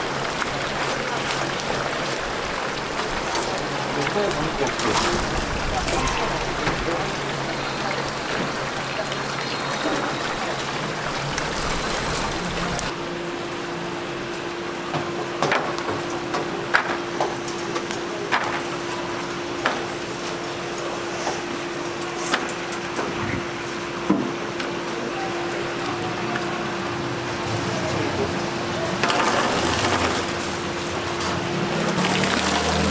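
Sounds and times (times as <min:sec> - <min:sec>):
steady hum: 0:21.6 - 0:27.5.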